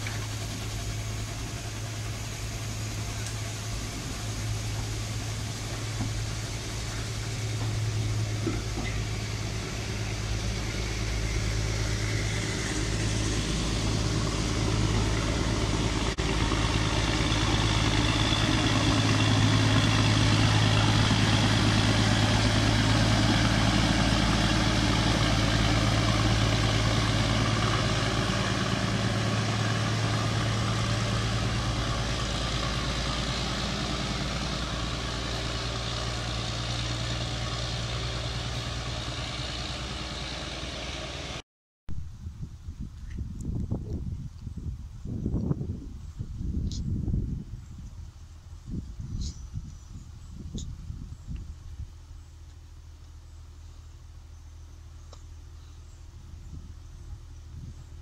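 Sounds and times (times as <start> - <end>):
coach wheels rumbling on track: 0.0 - 41.4
diesel locomotive engine drone: 0.0 - 58.0.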